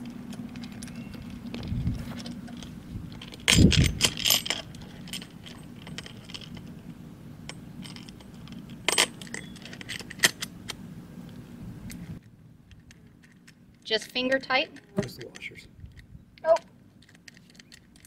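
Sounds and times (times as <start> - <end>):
metal hardware clinking on rail: 0.0 - 6.7, 7.4 - 10.8, 12.7 - 15.6.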